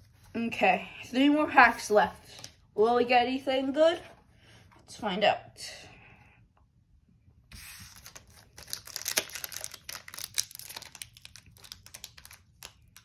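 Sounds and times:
foil wrapper crinkling and tearing: 7.6s - 13.0s.

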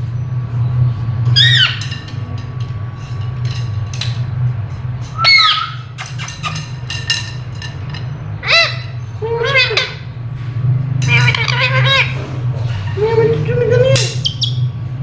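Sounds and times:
steady low hum: 0.0s - 15.0s
parrot squawking: 1.3s - 1.9s, 5.2s - 6.7s, 8.4s - 10.1s, 11.1s - 13.0s, 14.0s - 14.7s.

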